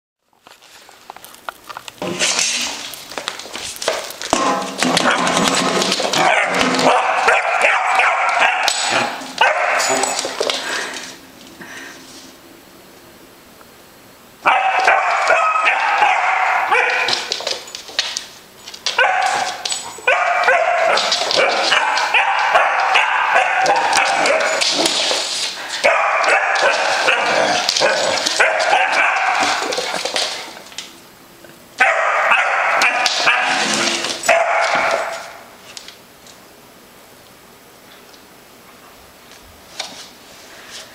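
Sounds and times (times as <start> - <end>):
puppy barking: 6.2 - 10.0, 14.4 - 17.3, 19.0 - 24.6, 25.8 - 29.7, 31.8 - 33.7, 34.3 - 35.4.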